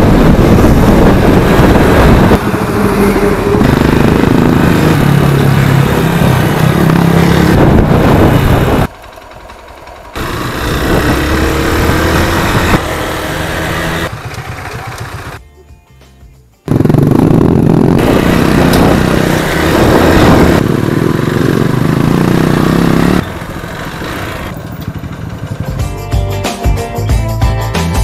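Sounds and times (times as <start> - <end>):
wind noise: 0.0 - 8.9, 10.2 - 14.1, 17.0 - 20.8
motorcycle engine running: 0.0 - 15.4, 16.6 - 26.4.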